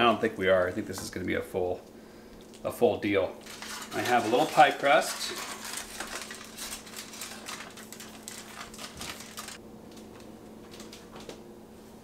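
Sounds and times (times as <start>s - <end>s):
foil and plastic crinkling: 3.4s - 11.3s.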